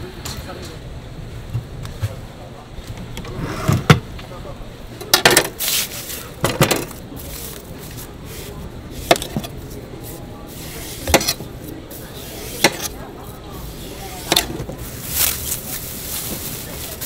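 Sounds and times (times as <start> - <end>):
knife cutting melon rind: 10.5 - 14.5.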